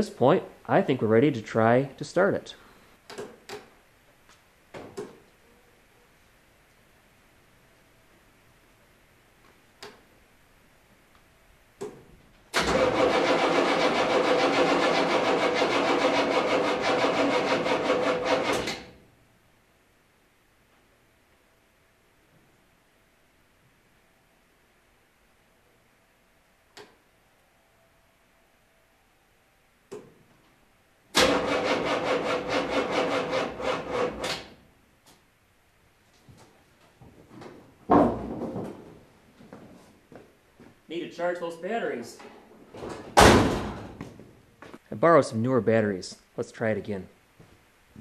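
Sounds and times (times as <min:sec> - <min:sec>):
starter motor cranking engine: 0:12.6 - 0:18.9, 0:31.2 - 0:34.5
click: 0:26.7 - 0:27.0.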